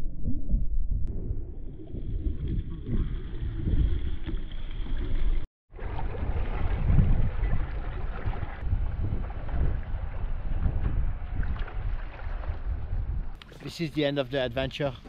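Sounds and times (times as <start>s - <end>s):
water splashing around kayak: 1.1s - 15.0s
wind buffeting microphone: 5.8s - 13.4s.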